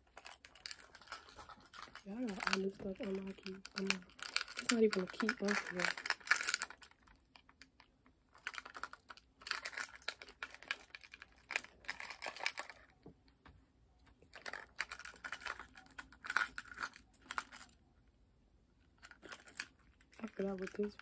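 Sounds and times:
keyring trinkets clinking: 14.4 - 17.8.

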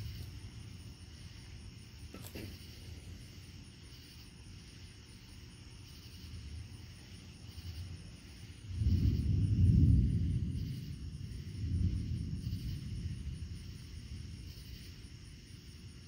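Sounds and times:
crickets chirping: 0.0 - 16.0
thunder rumbling: 6.4 - 15.6
faint low rumble: 7.5 - 15.6.

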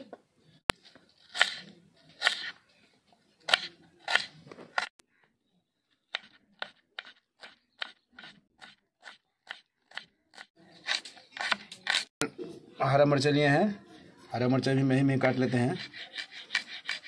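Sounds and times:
knife slicing onion: 1.2 - 2.6, 3.4 - 5.0, 6.1 - 12.1, 15.0 - 17.0.

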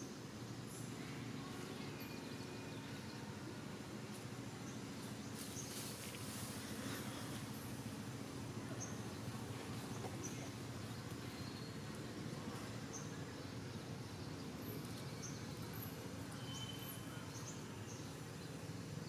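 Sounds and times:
faint high bird chirps: 15.1 - 18.0
thin whistle: 16.4 - 17.2.

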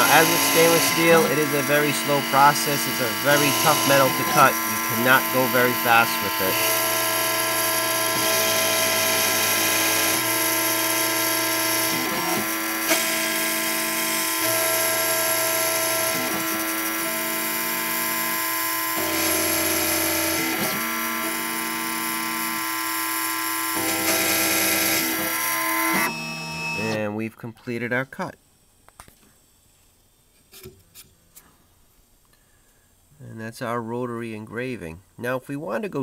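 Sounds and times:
engraving machine whining: 0.0 - 27.0
motors humming: 0.0 - 27.0.

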